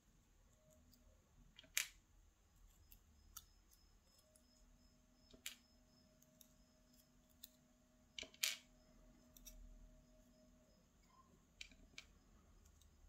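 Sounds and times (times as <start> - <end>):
small metal clicks of tweezers: 9.3 - 9.7.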